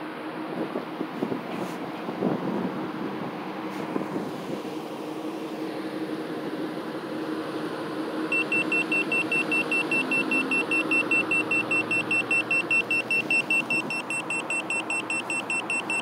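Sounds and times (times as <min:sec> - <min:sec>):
car engine idling: 0:00.3 - 0:16.0
carbon monoxide meter alarm beeping: 0:08.3 - 0:16.0.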